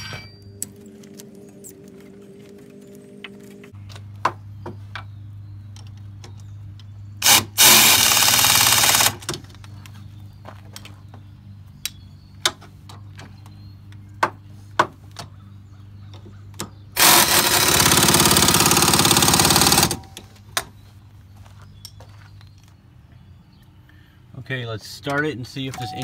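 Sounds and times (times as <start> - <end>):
pneumatic wrench running: 7.2 - 9.2, 17.0 - 20.2.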